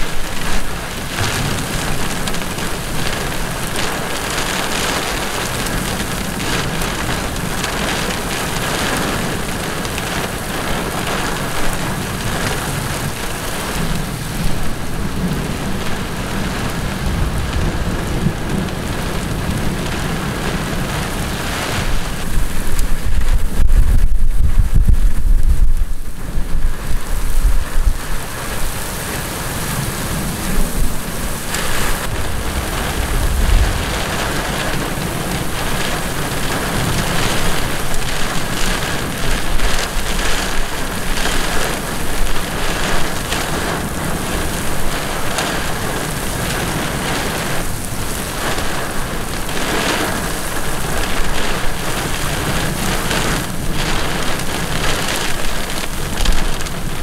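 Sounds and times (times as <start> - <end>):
heavy rain on road and grass: 0.0 - 57.0
low thunder rumble: 0.0 - 57.0
strong wind gusts: 0.0 - 57.0.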